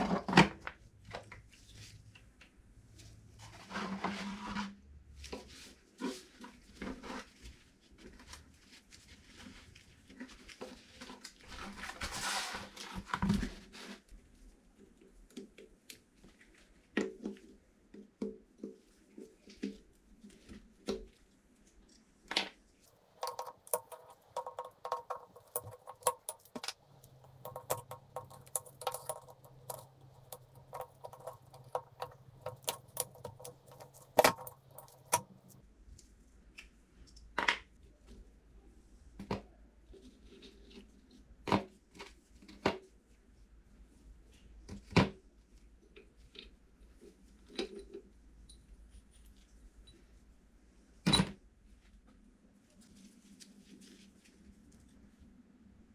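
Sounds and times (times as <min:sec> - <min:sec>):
metal parts tapping and knocking: 0:23.0 - 0:35.6.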